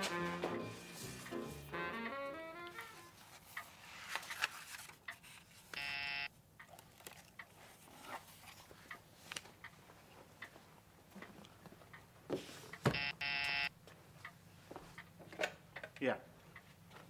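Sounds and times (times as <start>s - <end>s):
faint handling clicks and rustles: 3.2s - 5.8s, 6.6s - 12.8s
intercom buzzer: 5.8s - 6.3s, 12.9s - 13.7s.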